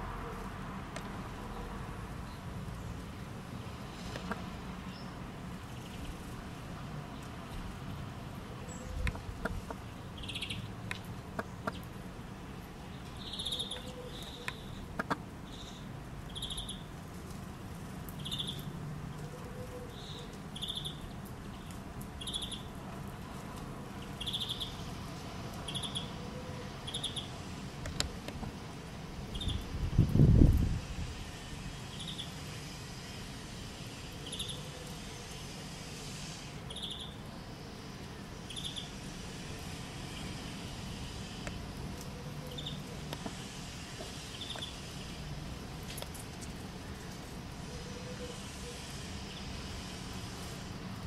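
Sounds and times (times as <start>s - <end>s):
songbird call notes: 10.2s - 10.7s, 13.2s - 14.9s, 19.9s - 21.0s, 24.2s - 24.9s, 25.7s - 27.3s, 36.7s - 37.2s.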